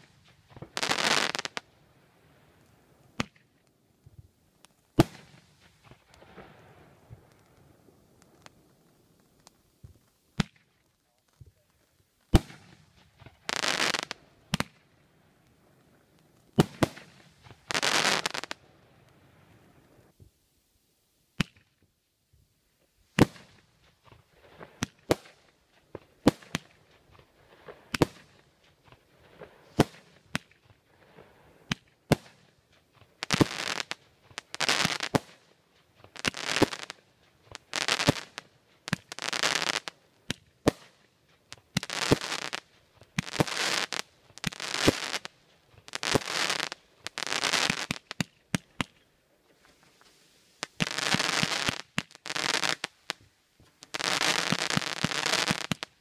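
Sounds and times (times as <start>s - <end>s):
fireworks crackling: 0.0s - 20.3s, 22.8s - 56.0s
fireworks banging: 49.6s - 55.9s.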